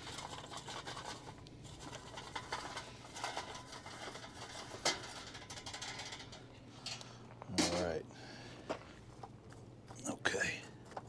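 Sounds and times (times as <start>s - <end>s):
charcoal clinking and crackling: 0.0s - 8.0s.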